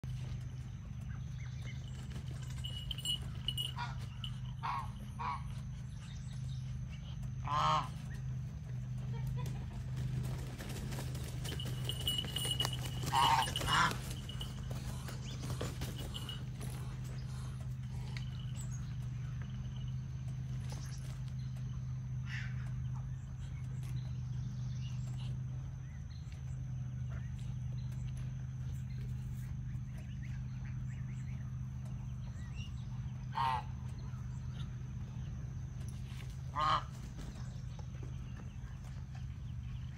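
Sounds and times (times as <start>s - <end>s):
steady low hum: 0.0s - 39.9s
goose honking: 3.5s - 5.6s, 7.4s - 8.2s, 12.3s - 15.1s, 33.3s - 34.2s, 36.4s - 37.2s.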